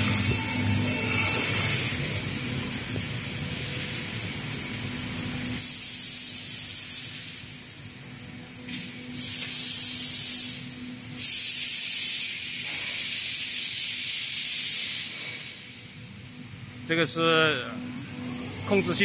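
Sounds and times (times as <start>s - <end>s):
low machine hum: 0.0s - 5.6s, 15.2s - 19.0s
compressed air hissing: 5.6s - 7.7s, 8.6s - 16.0s.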